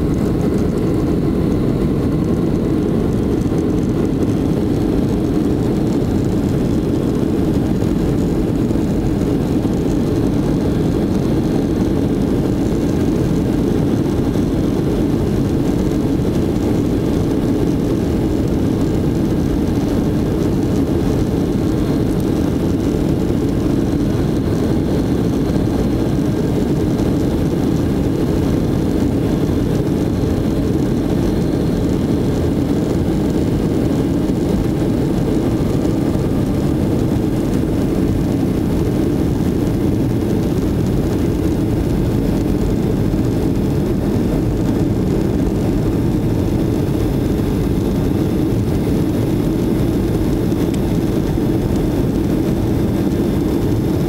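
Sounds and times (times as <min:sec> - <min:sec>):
jet engine rumble inside cabin: 0:00.0 - 0:54.0.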